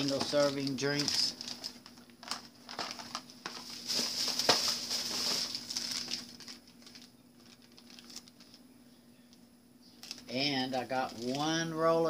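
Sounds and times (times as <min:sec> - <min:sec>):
packaging rustling and crinkling: 0:00.0 - 0:08.6, 0:09.9 - 0:11.7.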